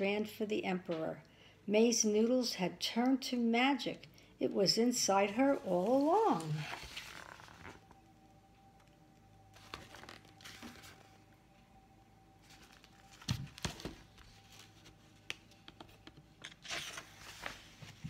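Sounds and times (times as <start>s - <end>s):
paper rustling: 5.2s - 7.8s, 9.6s - 11.2s, 12.4s - 18.0s
page turning: 5.3s - 7.9s, 9.6s - 11.2s, 12.4s - 18.0s.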